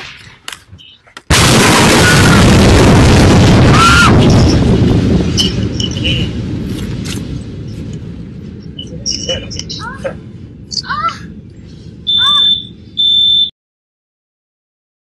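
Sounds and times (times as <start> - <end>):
explosion boom: 1.3 - 10.7.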